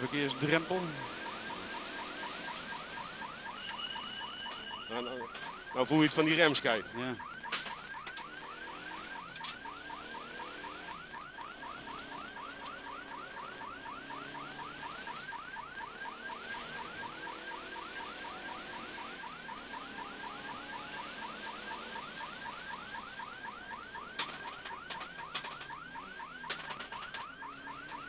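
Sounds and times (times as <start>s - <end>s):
electronic warning siren yelping: 0.0s - 28.0s
faint car engine and road noise: 0.0s - 28.0s.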